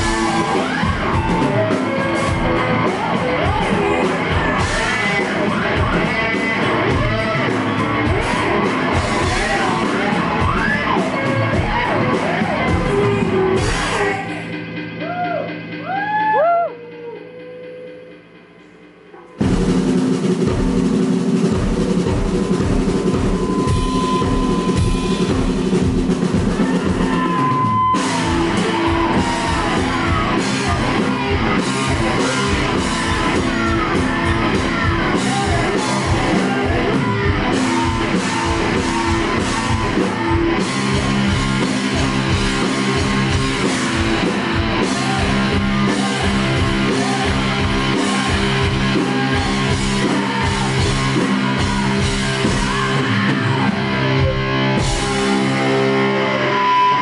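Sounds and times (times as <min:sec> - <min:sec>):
electric guitar: 0:00.0 - 0:20.8, 0:21.5 - 0:57.0
drums: 0:00.0 - 0:57.0
woman singing: 0:44.8 - 0:53.8.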